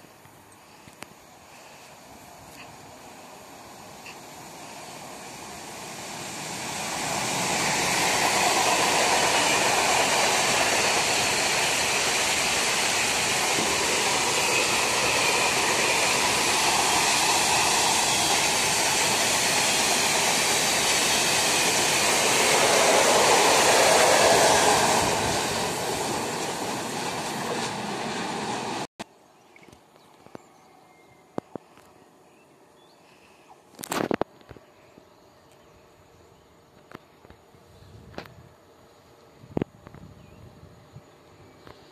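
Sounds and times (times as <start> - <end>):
train wheels rolling on rails: 0.8 - 28.9.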